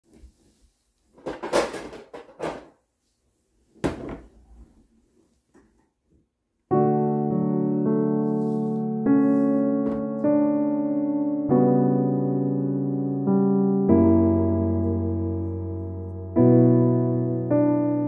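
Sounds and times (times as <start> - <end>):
keyboard chords music: 6.7 - 18.0.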